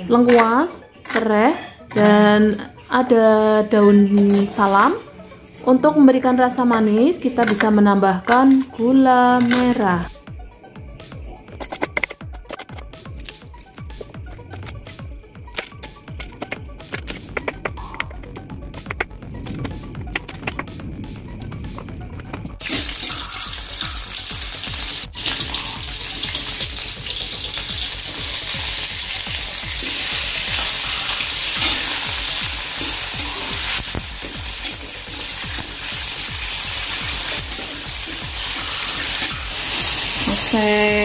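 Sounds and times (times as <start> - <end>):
food sizzling in hot oil: 22.6 - 41.0.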